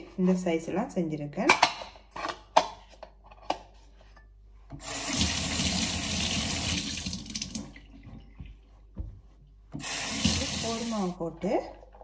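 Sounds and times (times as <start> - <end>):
tap water running into sink: 4.8 - 8.5, 9.8 - 11.0.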